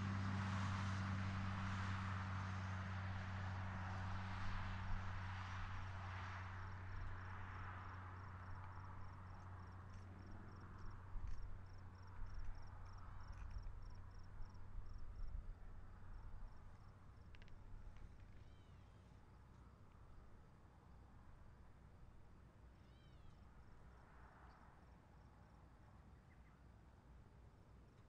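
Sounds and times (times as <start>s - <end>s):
distant vehicle passing: 0.0s - 15.3s
cricket chirping: 6.6s - 15.4s.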